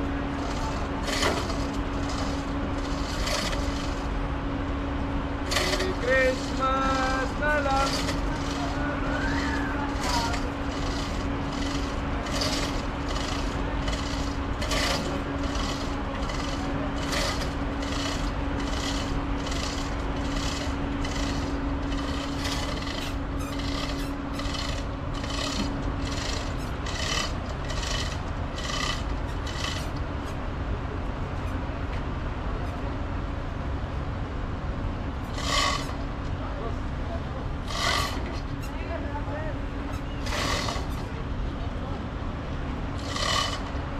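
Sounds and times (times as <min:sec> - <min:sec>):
machinery low hum: 0:00.0 - 0:43.9
regular rasping stroke: 0:05.4 - 0:08.9, 0:09.9 - 0:30.0.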